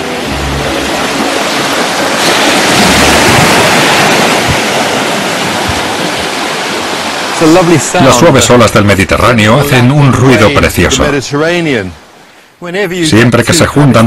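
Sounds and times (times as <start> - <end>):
waves washing up a beach: 0.0 - 8.6.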